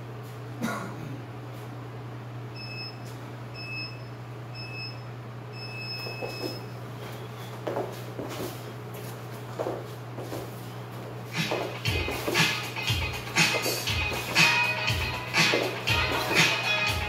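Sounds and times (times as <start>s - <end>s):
steady low hum: 0.0s - 17.0s
timer beeps: 2.6s - 3.0s, 3.6s - 5.0s.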